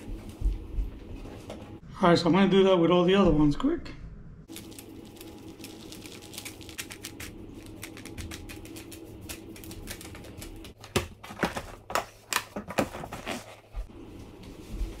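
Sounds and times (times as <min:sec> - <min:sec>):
seeds pattering onto soil: 0:04.5 - 0:10.2.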